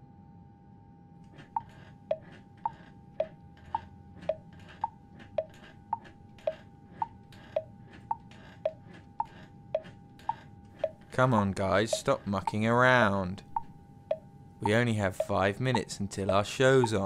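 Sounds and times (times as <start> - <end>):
wall clock ticking: 1.6 - 4.4, 5.4 - 7.7, 10.8 - 11.0, 11.9 - 12.7, 13.6 - 17.0.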